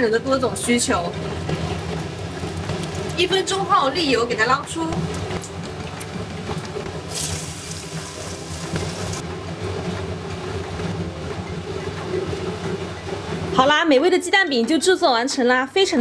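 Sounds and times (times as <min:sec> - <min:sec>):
hot oil sizzling and crackling: 0:00.5 - 0:04.3, 0:05.0 - 0:09.2.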